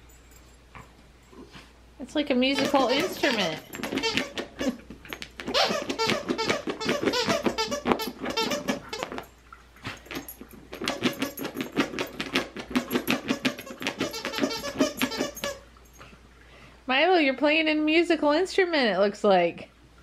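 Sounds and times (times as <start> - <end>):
dog toy squeaking: 2.5 - 9.3, 10.8 - 15.7.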